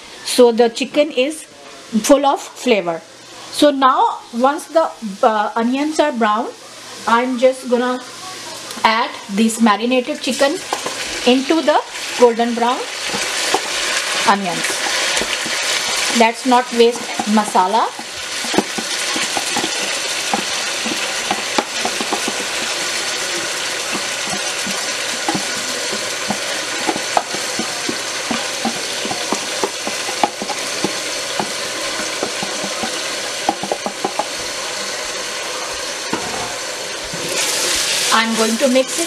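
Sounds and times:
chicken sizzling in hot oil: 0:09.1 - 0:39.0.

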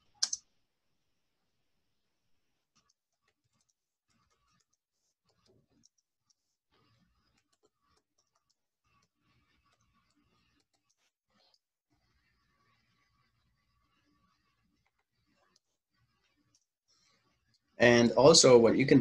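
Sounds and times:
keyboard typing: 0:00.0 - 0:00.5, 0:02.7 - 0:11.6.

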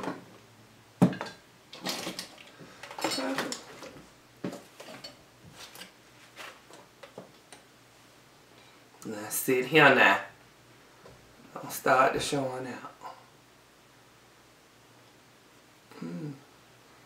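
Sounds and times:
dishes and utensils clinking: 0:01.0 - 0:03.9, 0:04.5 - 0:06.0.

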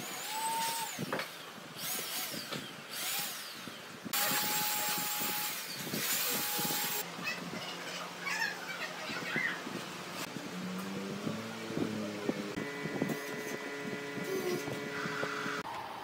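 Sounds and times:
power tool hissing and whining: 0:00.0 - 0:07.0, 0:11.3 - 0:15.6.

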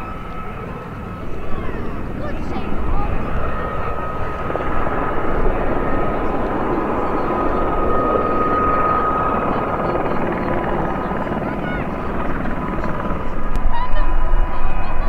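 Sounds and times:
distant helicopter rotor and turbine: 0:00.0 - 0:15.0.

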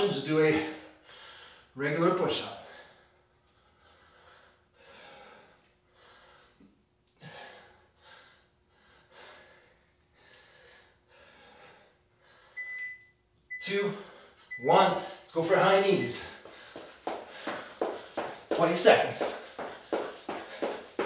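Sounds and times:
man breathing hard: 0:00.5 - 0:01.8, 0:02.6 - 0:12.6, 0:16.2 - 0:21.0
short electronic beep: 0:12.6 - 0:13.7.

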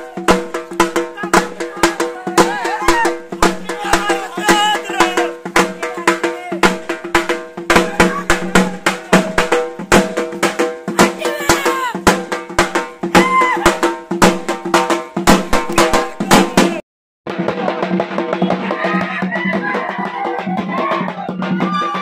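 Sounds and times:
crowd shouting: 0:00.0 - 0:00.5, 0:01.1 - 0:09.6, 0:11.1 - 0:12.2, 0:13.2 - 0:13.9, 0:15.8 - 0:16.8, 0:17.6 - 0:22.0
rapid drumming: 0:00.0 - 0:22.0.

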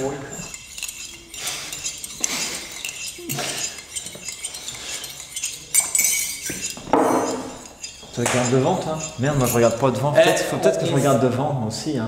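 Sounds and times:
spoons clinking against mugs: 0:00.0 - 0:11.1
man's voice: 0:08.2 - 0:12.0.

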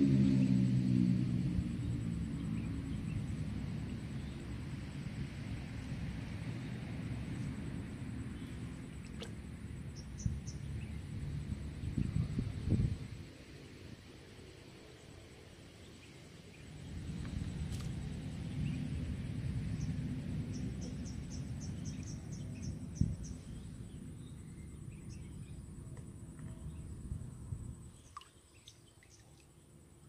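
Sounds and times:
low rumble: 0:00.0 - 0:13.3
faint high whine: 0:00.0 - 0:30.0.

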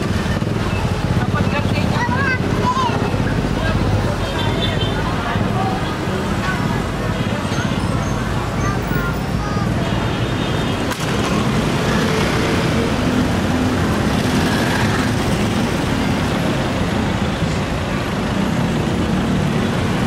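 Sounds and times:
street traffic noise: 0:00.0 - 0:20.0
vehicle engine running close by: 0:10.0 - 0:20.0.

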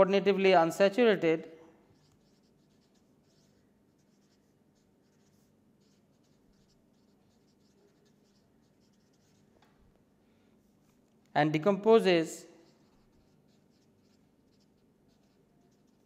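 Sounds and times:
felt-tip marker scratching paper: 0:01.9 - 0:09.5, 0:12.6 - 0:16.0.

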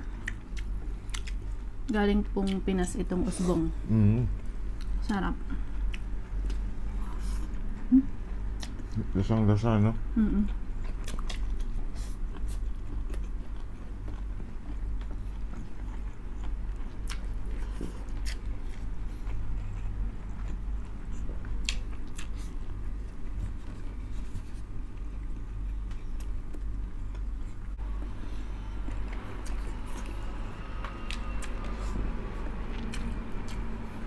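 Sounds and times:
wet chewing and lip smacks: 0:00.0 - 0:01.6, 0:10.8 - 0:23.2, 0:30.9 - 0:34.0
steady low hum: 0:00.0 - 0:34.0.

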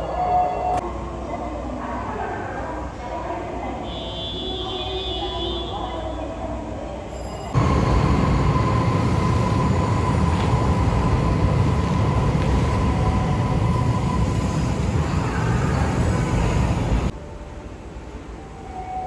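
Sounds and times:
electric train rumble: 0:07.0 - 0:19.0.

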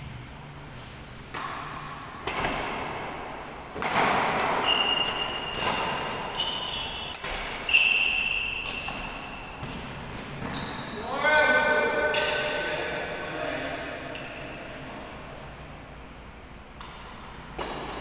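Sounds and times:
shuttlecock hit by rackets: 0:01.3 - 0:03.1, 0:03.7 - 0:06.2, 0:07.1 - 0:07.7, 0:16.8 - 0:18.0
sneakers squeaking on floor: 0:02.3 - 0:11.3.

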